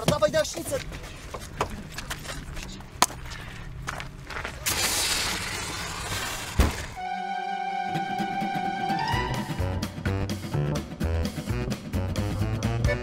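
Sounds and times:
fire extinguisher hissing: 4.6s - 7.0s
thud: 4.7s - 7.0s.

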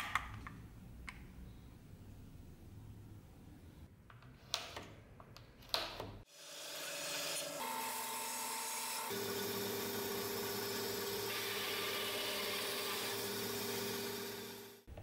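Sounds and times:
band saw cutting wood: 6.3s - 14.8s.

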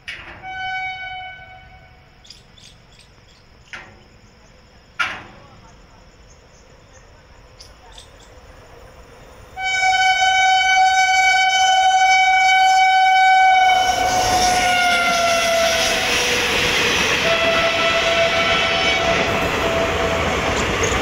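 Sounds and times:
passing train rushing: 0.0s - 21.0s
locomotive horn blast: 0.3s - 2.2s, 9.6s - 16.5s, 17.2s - 20.2s
lower horn note: 9.6s - 16.2s, 17.2s - 19.9s.

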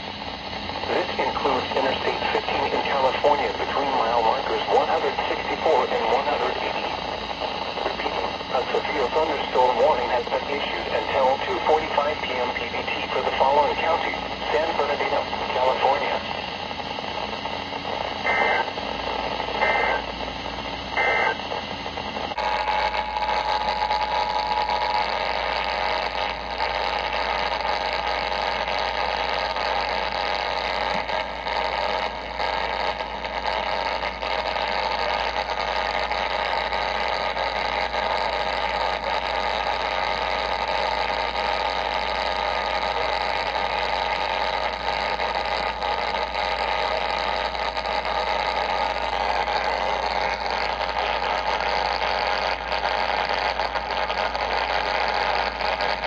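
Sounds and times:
radio static hiss: 0.0s - 56.0s
steady radio tone: 0.0s - 56.0s
warbling radio data bursts: 0.2s - 56.0s.

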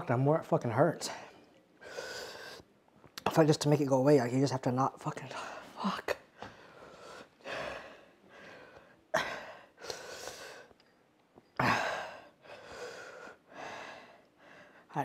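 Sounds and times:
man breathing hard and gasping: 6.4s - 10.7s, 11.6s - 14.9s.

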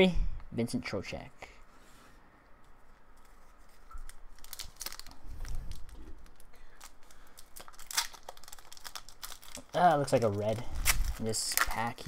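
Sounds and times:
wrapper crinkling: 3.2s - 12.0s.

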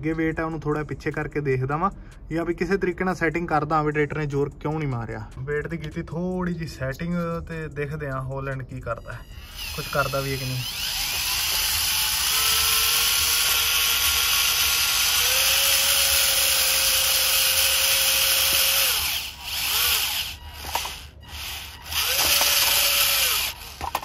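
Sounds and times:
toy tractor electric motor whining: 9.2s - 24.0s.

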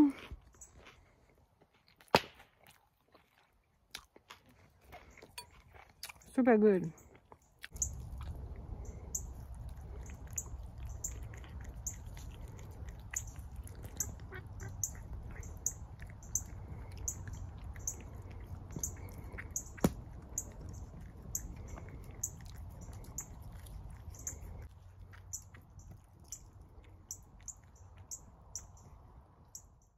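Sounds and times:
cat chewing with wet clicks: 7.0s - 29.2s
low rumble: 7.8s - 24.9s.

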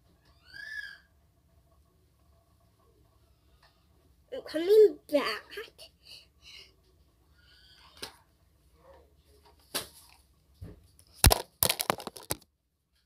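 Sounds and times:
handling knocks and clicks: 11.2s - 12.4s.

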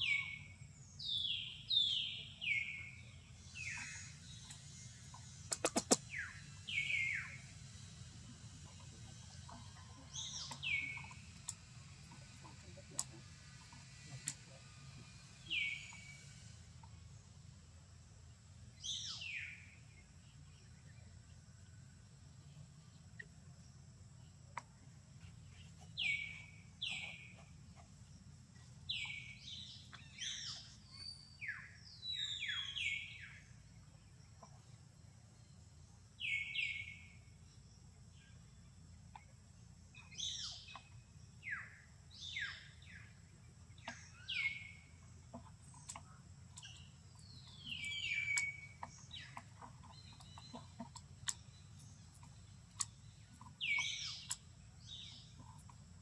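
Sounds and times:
faint low hum: 0.0s - 56.0s
birds chirping: 8.6s - 17.1s, 24.2s - 35.6s, 36.2s - 37.4s, 38.2s - 56.0s.

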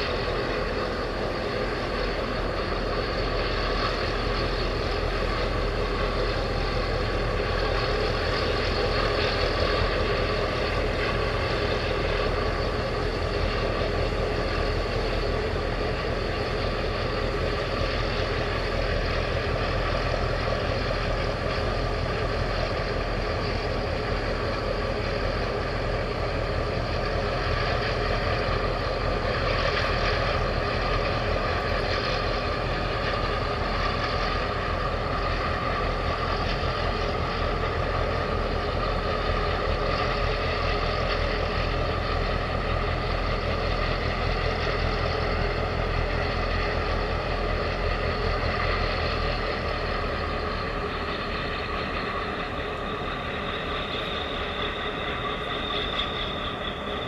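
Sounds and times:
faint steady tones: 0.0s - 57.0s
ship engines rumbling: 0.0s - 57.0s.

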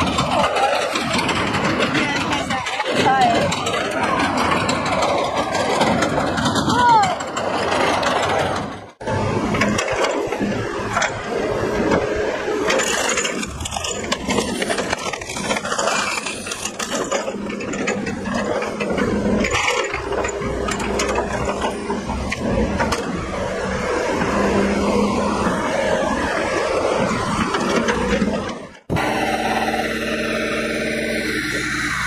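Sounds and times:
excavator engine running: 0.0s - 32.0s
log splitter running: 0.0s - 32.0s
wood cracking and scraping: 11.9s - 24.5s.

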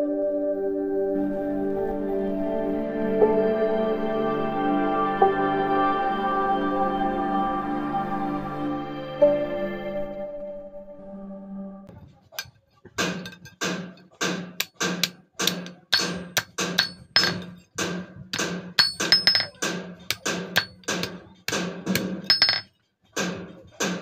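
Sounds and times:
hammer striking steel on anvil: 13.0s - 24.0s.

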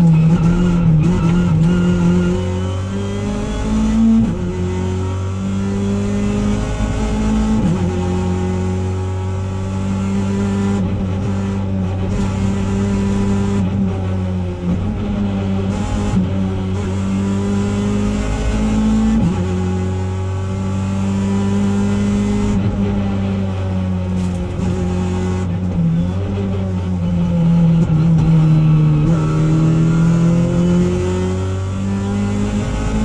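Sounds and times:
rally car engine accelerating: 0.0s - 33.0s.

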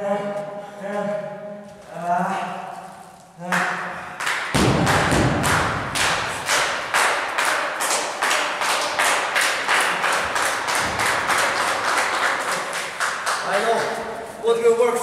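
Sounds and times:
crowd clapping in rhythm: 3.4s - 14.0s.

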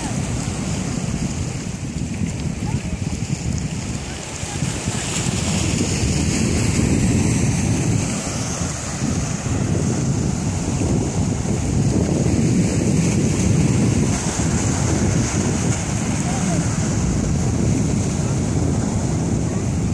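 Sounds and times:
small waves washing ashore: 0.0s - 19.9s
wind buffeting microphone: 0.0s - 19.9s.

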